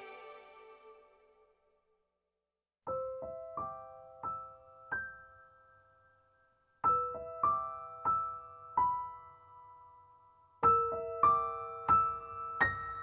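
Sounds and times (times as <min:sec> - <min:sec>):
slow quiet piano music: 0:02.9 - 0:13.0.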